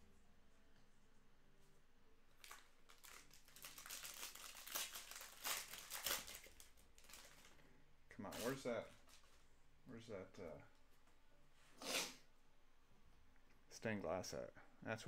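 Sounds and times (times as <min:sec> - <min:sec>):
foil wrapper crinkling: 0:02.4 - 0:07.6.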